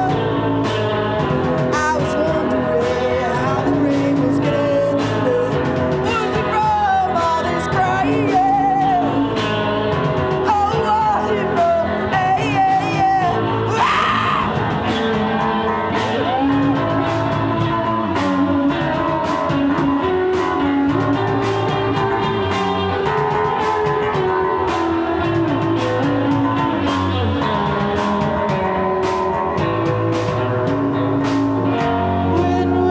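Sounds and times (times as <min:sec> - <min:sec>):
person singing: 0:00.0 - 0:00.8, 0:01.6 - 0:29.6, 0:31.6 - 0:32.9
rock band playing: 0:00.0 - 0:32.9.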